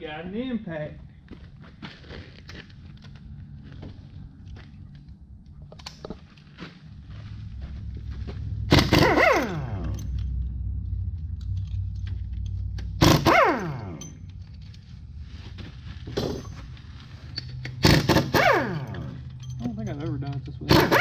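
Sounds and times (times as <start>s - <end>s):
steady low hum: 0.0s - 21.0s
motor spinning down whine: 7.5s - 14.1s
impact wrench hammering: 8.7s - 10.2s, 12.8s - 14.4s, 17.4s - 19.8s, 20.6s - 21.0s.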